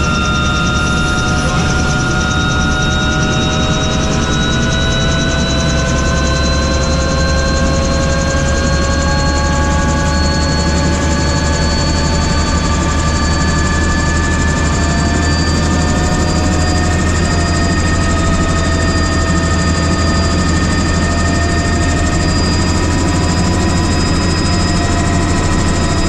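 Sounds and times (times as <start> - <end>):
helicopter drone: 0.0 - 26.0
rising whining tones: 0.0 - 26.0.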